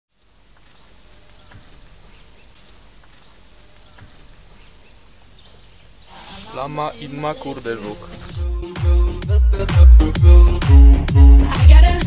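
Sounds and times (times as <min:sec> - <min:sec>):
small birds chirping: 0:00.1 - 0:08.5
faint knocks: 0:01.4 - 0:04.7.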